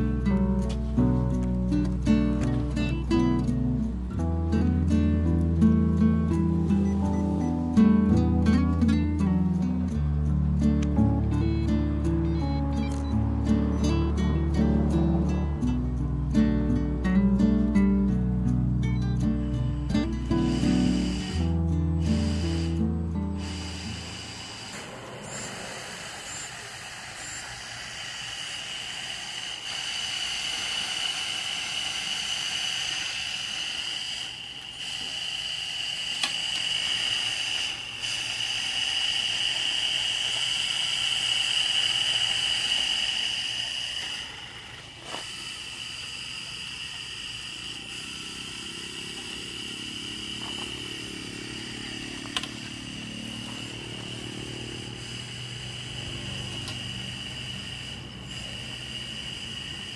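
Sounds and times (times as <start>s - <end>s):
low hum: 0.0s - 59.8s
small electric motor whine: 18.8s - 59.9s.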